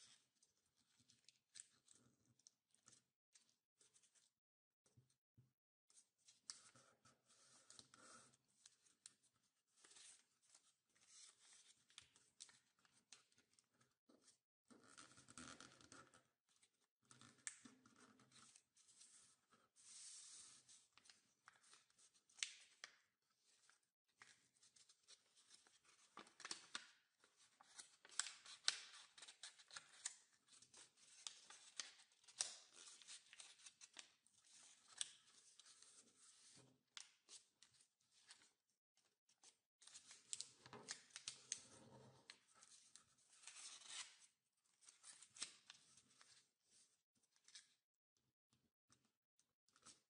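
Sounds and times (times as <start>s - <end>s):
paper rustling and crackling: 26.2s - 26.8s.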